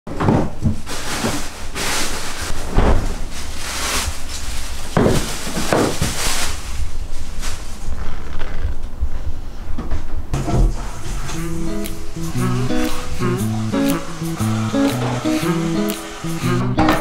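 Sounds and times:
plastic bags crinkling: 0:00.6 - 0:08.2.

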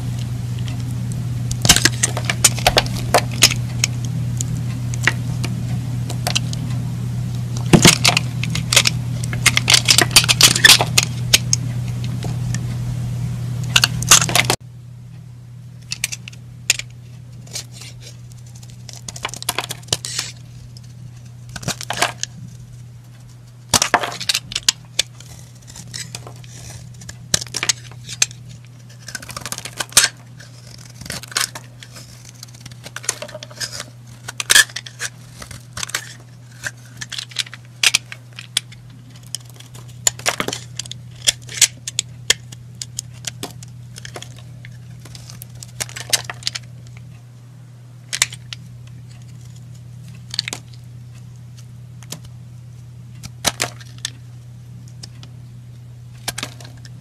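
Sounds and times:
steady low hum: 0:00.0 - 0:57.0
knife crunching through soap: 0:17.4 - 0:20.6, 0:21.5 - 0:22.4, 0:23.7 - 0:46.6.

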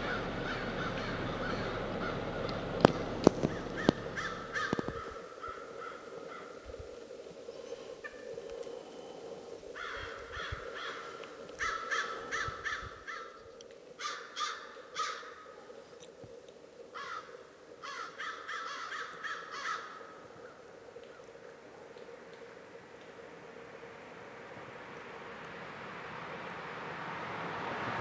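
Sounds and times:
eagle piping calls: 0:00.0 - 0:13.4
faint steady hum: 0:00.0 - 0:28.0.

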